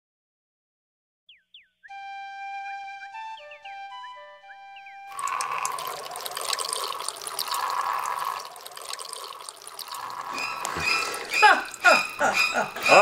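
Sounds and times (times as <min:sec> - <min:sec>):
flute tune: 0:01.9 - 0:06.3
water pouring from watering can: 0:05.1 - 0:11.8.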